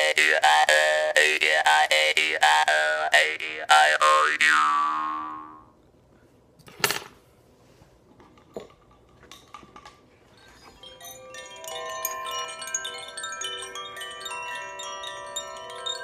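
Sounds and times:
chimes tinkling: 10.3s - 16.0s.

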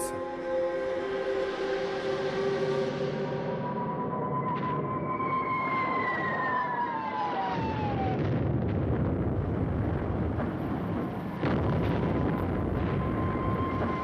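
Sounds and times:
low rumble of explosions: 7.4s - 14.0s.

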